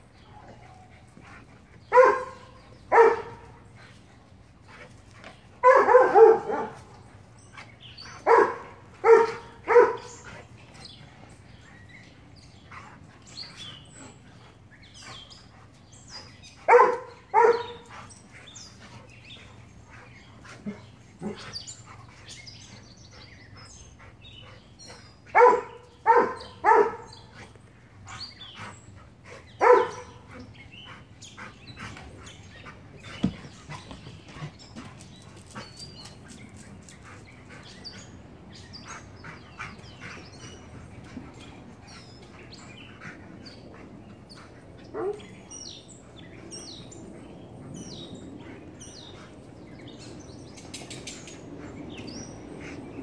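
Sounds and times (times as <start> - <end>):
dogs barking: 1.9 - 3.6, 5.6 - 7.0, 8.1 - 10.3, 16.6 - 18.0, 25.3 - 27.4, 29.6 - 30.5, 44.9 - 45.4.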